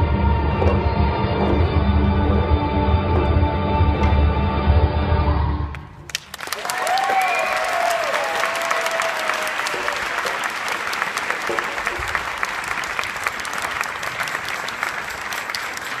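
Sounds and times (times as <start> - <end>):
audience applauding: 5.7 - 16.0.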